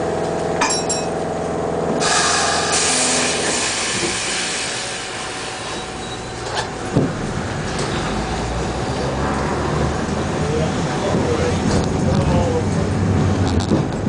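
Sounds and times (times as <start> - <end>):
tram hum: 0.0 - 14.0
tram running rumble: 0.0 - 14.0
air hiss: 2.0 - 6.0.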